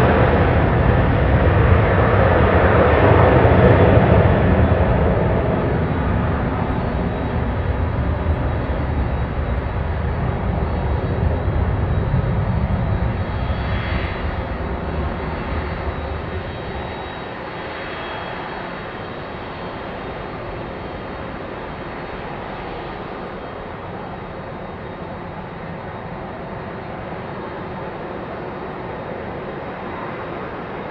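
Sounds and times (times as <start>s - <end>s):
jet engines running: 0.0s - 30.9s.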